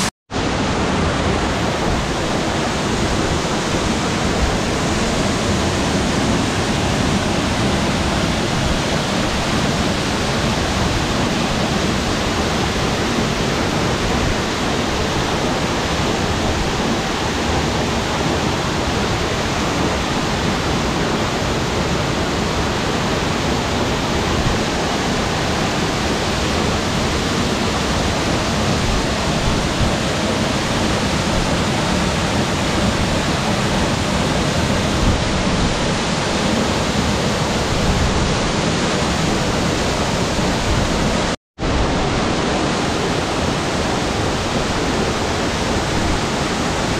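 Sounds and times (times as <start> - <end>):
waterfall rushing: 0.0 - 46.9.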